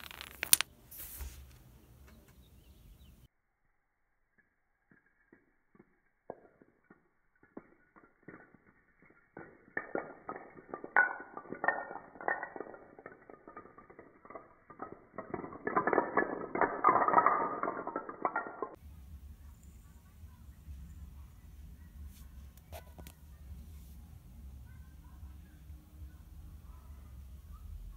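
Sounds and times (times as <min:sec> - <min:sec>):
wooden dominoes toppling on tile: 0:00.0 - 0:00.7, 0:05.8 - 0:18.8.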